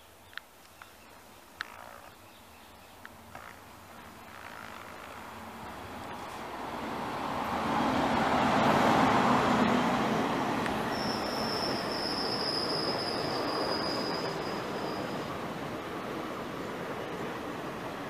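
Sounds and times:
train wheels rushing on rail: 5.7s - 18.0s
high-pitched squeal: 10.8s - 15.3s.

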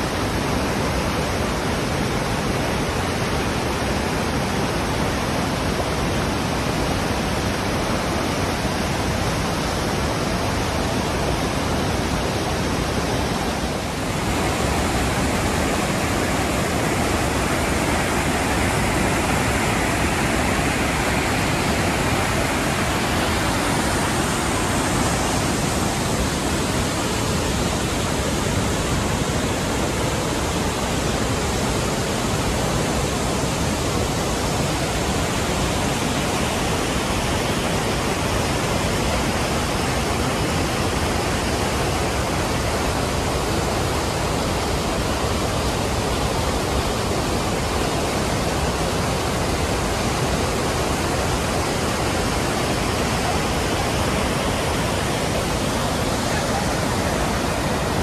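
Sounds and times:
waterfall rushing over rock: 0.0s - 58.0s.

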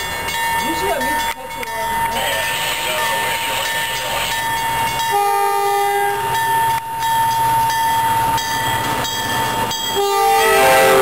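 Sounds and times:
train engine and wheels rumbling: 0.0s - 11.0s
train air horn: 5.1s - 6.2s, 10.0s - 11.0s.

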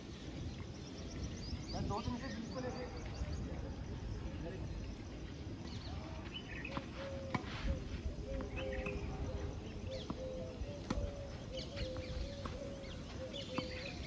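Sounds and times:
tennis balls struck by rackets: 6.7s - 7.5s, 10.0s - 11.2s, 11.9s - 14.0s.

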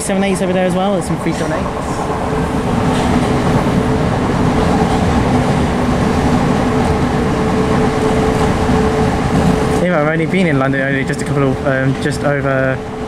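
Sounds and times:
train wheels rumbling on track: 0.0s - 13.0s.

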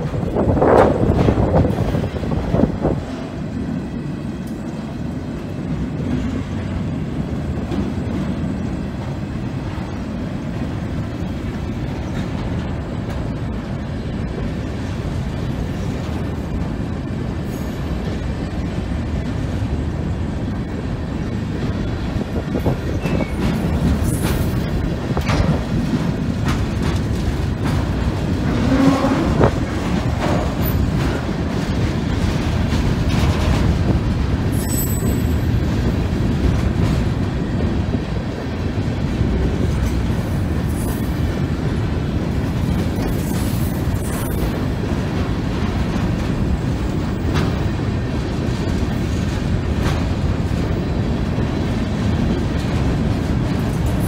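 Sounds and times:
steel wheels rumbling on rails: 0.0s - 54.0s
freight cars clanking: 21.8s - 54.0s.

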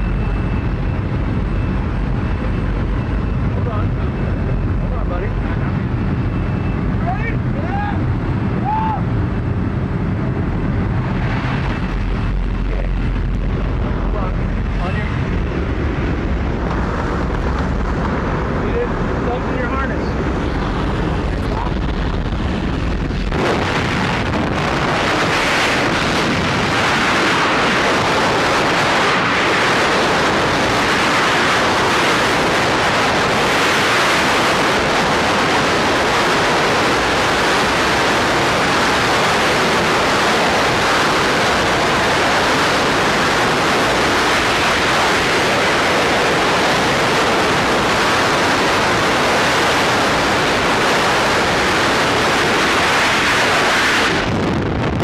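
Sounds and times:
wind rushing on microphone: 0.0s - 55.0s.

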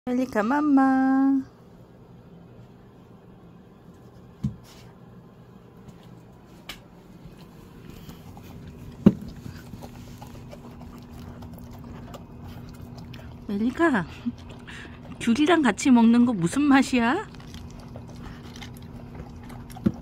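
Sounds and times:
dog crunching kibble: 7.4s - 20.0s.

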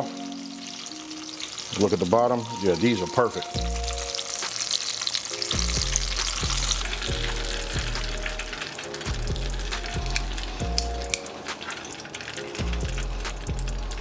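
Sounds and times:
tomato slices sizzling in hot oil: 0.0s - 14.0s
background music with bass line: 2.5s - 4.3s, 5.4s - 11.3s, 12.4s - 14.0s.

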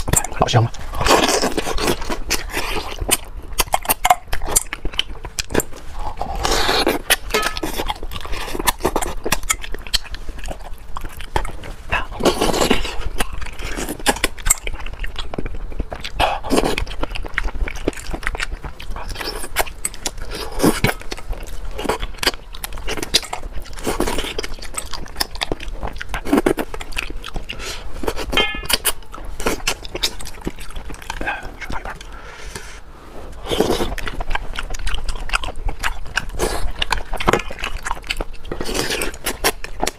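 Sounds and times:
lip-smacking and chewing: 0.0s - 39.9s.

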